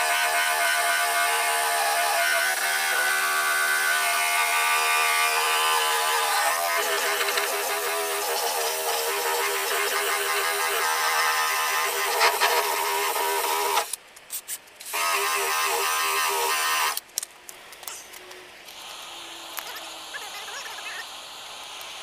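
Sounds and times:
drill motor whine: 0.0 - 13.9, 14.9 - 17.0
abrasive disc scraping paint: 5.7 - 14.0.

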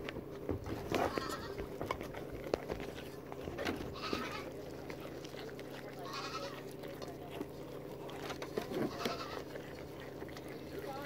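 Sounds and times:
goats chewing: 0.0 - 11.0
goat bleating: 0.9 - 1.8, 3.6 - 6.8, 8.5 - 11.0.

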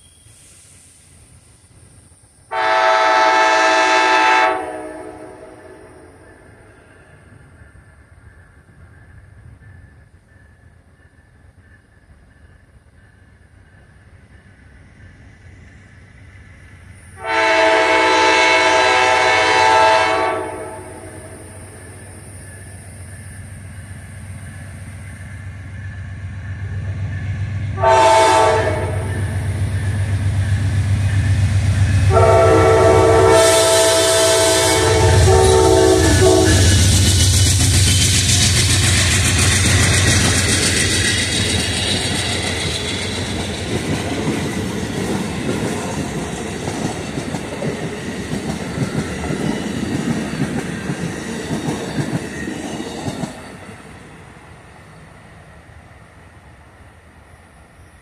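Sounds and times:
diesel locomotive passing: 0.0 - 58.0
train wheels on rails: 0.0 - 58.0
train horn blast: 2.5 - 6.3, 17.2 - 21.6, 27.8 - 29.6, 32.0 - 37.0.

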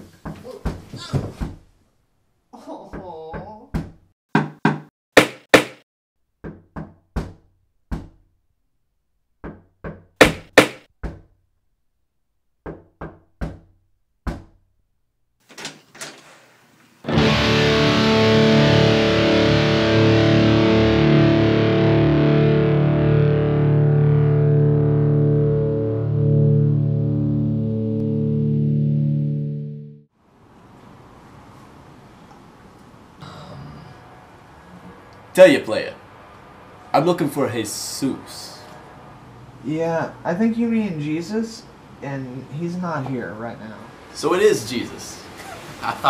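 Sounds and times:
knocking on a door: 2.9 - 5.8, 6.4 - 8.2, 9.4 - 11.3, 12.6 - 14.6
distorted electric guitar music: 17.1 - 30.0.

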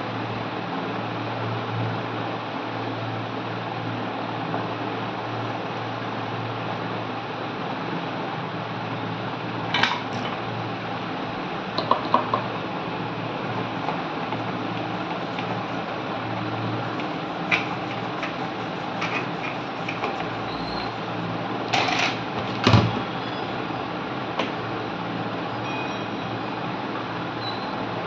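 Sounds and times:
steady hum: 9.8 - 22.9.

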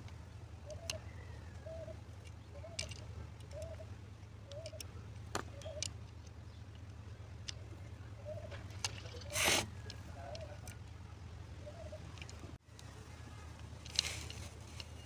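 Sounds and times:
bird calling: 0.0 - 6.8, 7.4 - 13.6
light clicks of parts fitted: 0.0 - 7.7, 12.1 - 15.0
steady low hum: 0.0 - 15.0.

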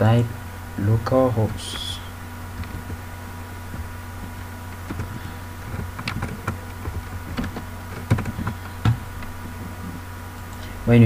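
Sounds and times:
steady low hum: 0.0 - 11.0
keyboard keystrokes: 4.9 - 9.0.

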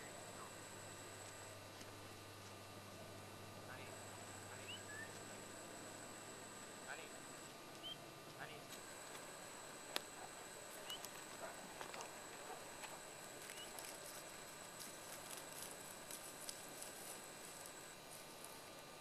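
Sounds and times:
steady hiss: 0.0 - 19.0
thin high-pitched whine: 0.0 - 19.0
faint chirps: 3.7 - 5.6, 7.8 - 8.6, 10.7 - 11.2, 13.4 - 14.0.

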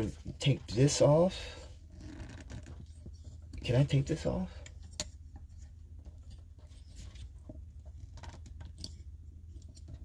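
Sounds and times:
small clicks and scratches: 1.9 - 3.8, 4.6 - 10.0.

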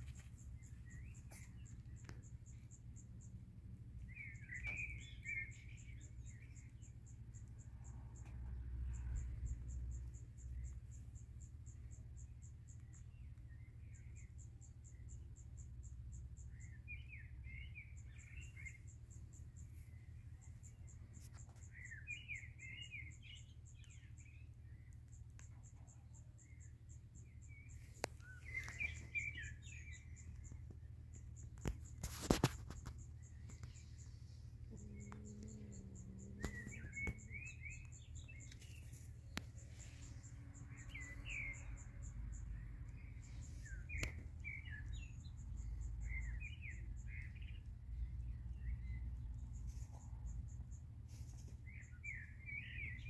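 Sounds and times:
cricket chirping trill: 0.0 - 53.0
songbird chirping: 0.0 - 53.0.

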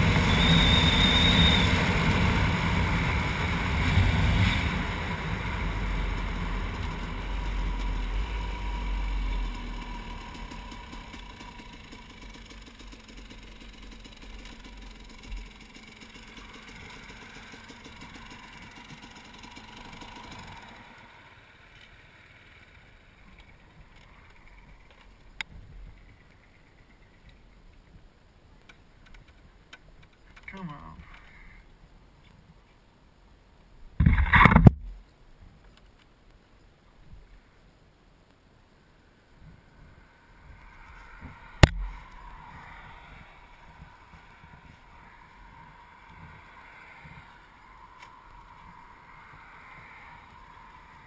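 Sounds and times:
dirt bike engine running: 0.0 - 21.4
wind noise on microphone: 33.9 - 35.7
sharp click: 41.6 - 41.8.

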